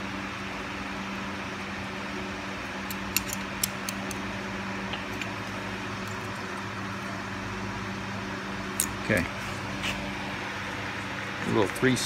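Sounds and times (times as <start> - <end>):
steady low hum: 0.0 - 12.0
wrench clicking on metal screw: 2.9 - 4.2.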